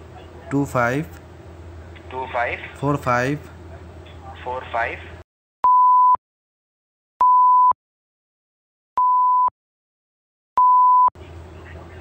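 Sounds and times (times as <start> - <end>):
censor bleeps: 5.6 - 6.2, 7.2 - 7.8, 9.0 - 9.5, 10.6 - 11.1.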